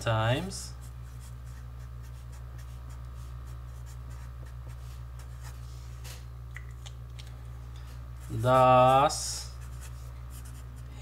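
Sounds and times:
steady low hum: 0.0s - 11.0s
marker scratching on paper: 0.8s - 5.6s, 8.2s - 10.8s.

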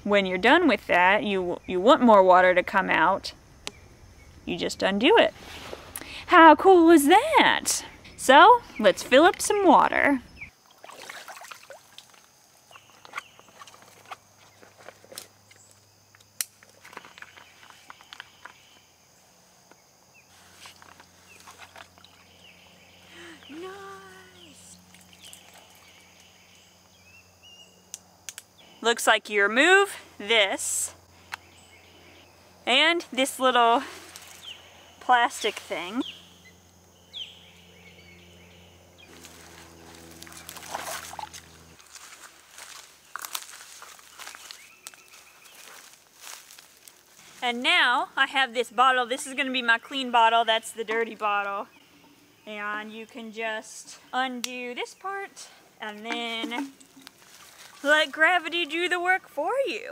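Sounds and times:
high insect drone: 0.0s - 59.8s
footsteps through grass and leaves: 5.3s - 6.1s, 20.2s - 22.4s, 33.8s - 34.6s, 39.1s - 47.7s, 56.1s - 58.8s
low steady hum: 20.1s - 59.2s
bird chirps: 34.1s - 39.2s.

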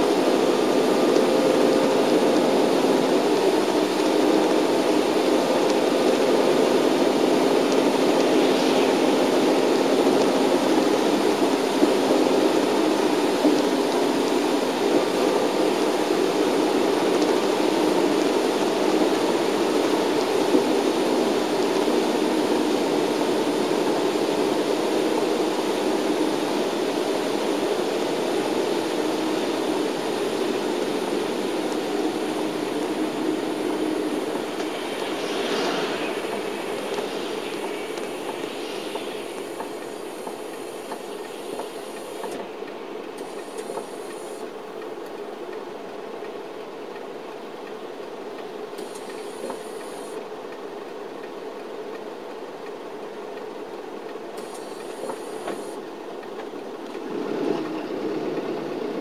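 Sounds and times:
bus engine and tyre rumble: 0.0s - 59.0s
faint higher sounds: 32.8s - 41.9s.

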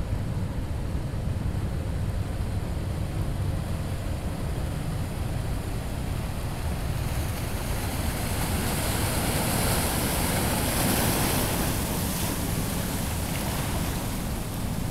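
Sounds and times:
waves breaking on rocks: 6.8s - 14.9s.

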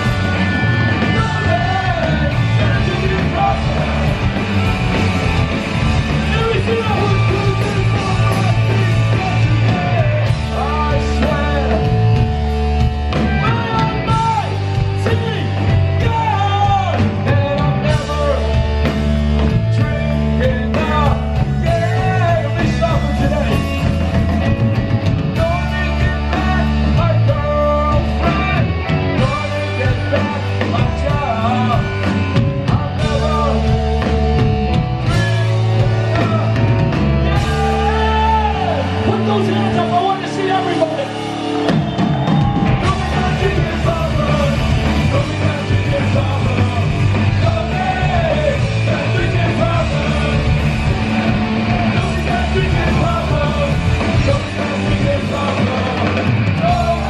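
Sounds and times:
bass guitar: 0.0s - 57.0s
drum kit: 0.0s - 57.0s
electric guitars: 0.0s - 57.0s
person singing: 6.0s - 12.3s, 35.0s - 41.3s, 42.6s - 57.0s.

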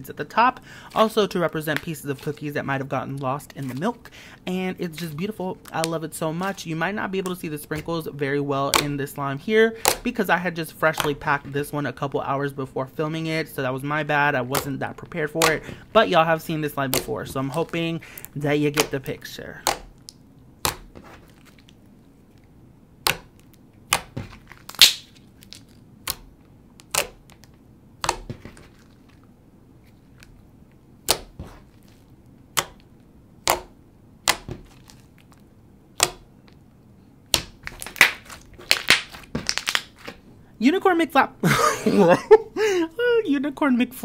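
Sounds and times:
air pockets popping in slime: 9.8s - 10.1s, 14.5s - 21.8s, 23.0s - 29.2s, 31.0s - 32.0s, 32.6s - 35.4s, 36.0s - 36.4s, 37.3s - 40.2s.

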